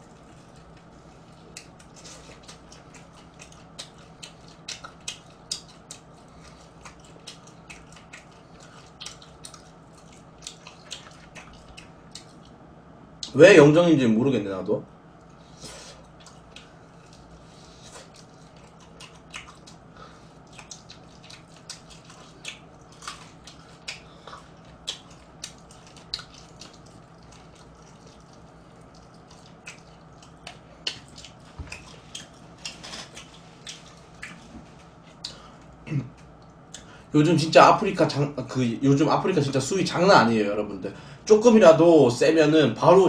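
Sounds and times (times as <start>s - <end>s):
person chewing crispy food: 0.0s - 12.6s, 15.3s - 37.0s
faint low hum: 0.0s - 43.0s.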